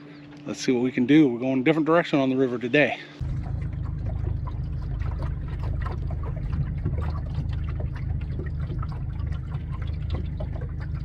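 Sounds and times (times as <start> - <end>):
steady low rumble: 3.1 - 11.0
small splashes: 3.2 - 11.0
water lapping against boat: 3.2 - 11.0.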